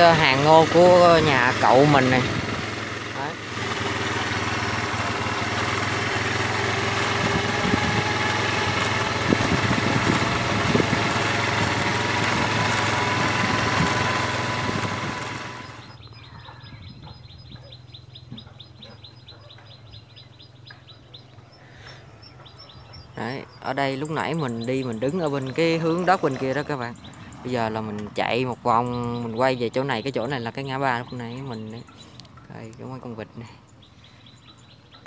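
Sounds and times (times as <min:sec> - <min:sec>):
motorbike engine running: 0:00.0 - 0:35.0
wind noise on microphone: 0:07.2 - 0:08.2, 0:09.0 - 0:15.6, 0:16.6 - 0:17.6
rapid even chirping: 0:15.3 - 0:35.0.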